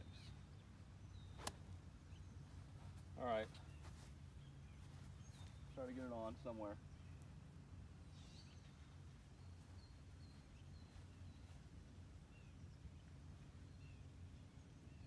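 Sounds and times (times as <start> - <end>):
bird chirps: 0.0 - 2.9, 3.6 - 5.9, 8.0 - 11.7
low outdoor rumble: 0.0 - 15.0.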